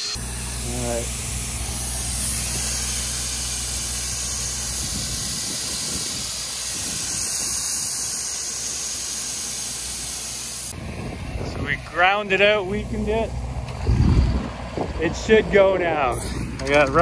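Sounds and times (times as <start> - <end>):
low steady hum: 0.0 - 7.4
compressed air hissing: 0.0 - 13.2.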